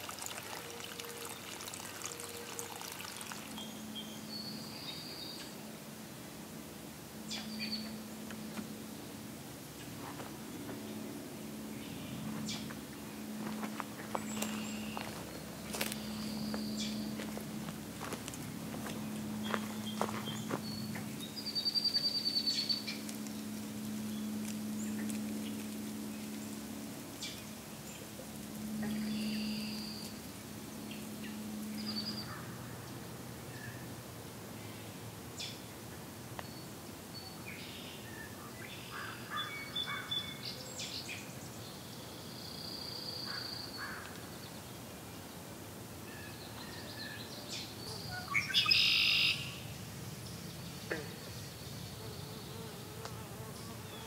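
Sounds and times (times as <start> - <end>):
songbirds calling and chirping: 0.0 - 5.7, 7.2 - 54.0
flying insect buzzing: 51.9 - 54.0.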